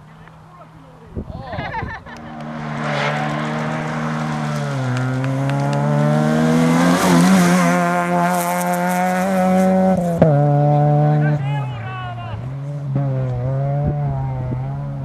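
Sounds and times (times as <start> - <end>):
gravel crackling under tyres: 0.0 - 10.8
rally car engine at high revs: 2.1 - 11.4, 12.4 - 15.0.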